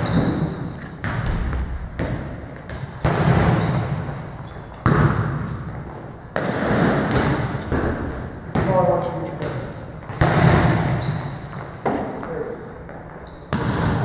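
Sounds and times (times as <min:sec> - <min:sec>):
volleyball smacks echoing: 0:00.2 - 0:04.1, 0:04.8 - 0:05.7, 0:06.3 - 0:11.0, 0:13.5 - 0:14.0.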